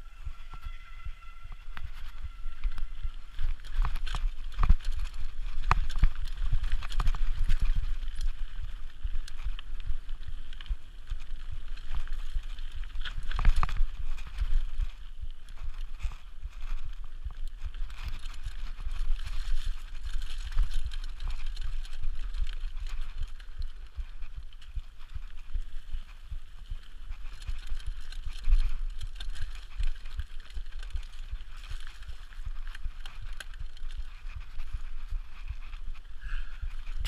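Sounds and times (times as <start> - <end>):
bike knocking and rattling: 0.0 - 37.0
bike tyres on dirt: 0.0 - 37.0
wind rumbling on microphone: 0.0 - 37.0.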